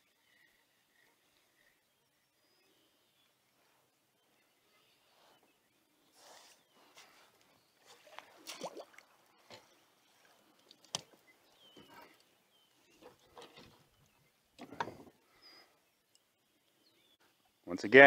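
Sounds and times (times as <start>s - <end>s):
fish splashing and thrashing: 7.8s - 11.3s
knocks and rattles on kayak: 14.6s - 15.2s.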